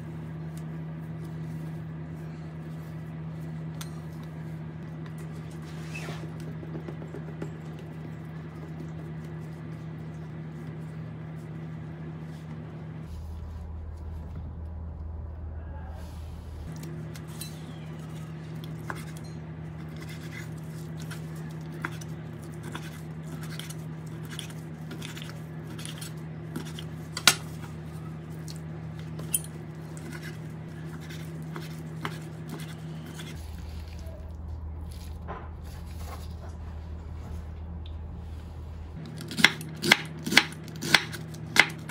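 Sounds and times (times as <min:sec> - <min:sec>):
low hum: 0:00.0 - 0:41.9
utensils clinking against dishes: 0:17.2 - 0:20.4.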